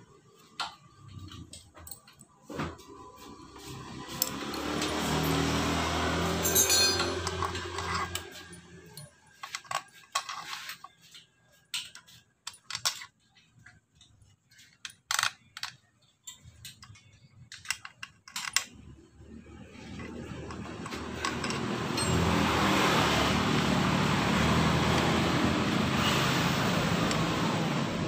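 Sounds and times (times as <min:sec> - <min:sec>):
metallic clinks of hand tool: 0:06.4 - 0:09.2, 0:21.4 - 0:22.5.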